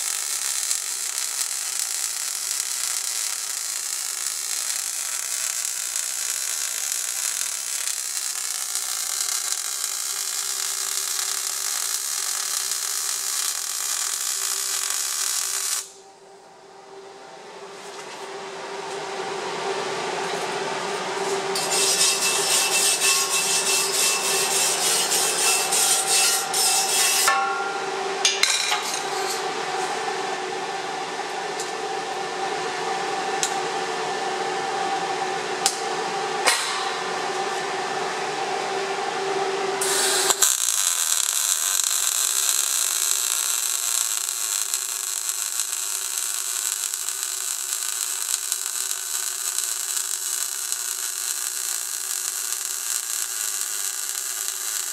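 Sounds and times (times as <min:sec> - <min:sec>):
welding arc crackling sizzle: 0:00.0 - 0:16.0, 0:20.2 - 0:54.9
steady hum: 0:15.9 - 0:40.4.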